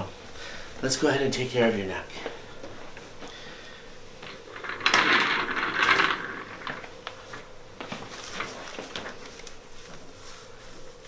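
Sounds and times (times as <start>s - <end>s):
paper rustling: 7.2s - 10.6s.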